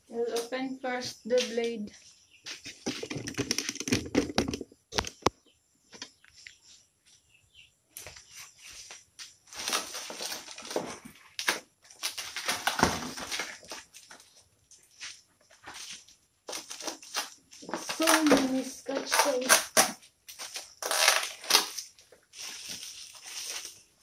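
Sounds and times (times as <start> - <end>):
sharp knocks and clicks: 2.7 - 6.2
plastic wrapping crinkling: 9.4 - 24.0.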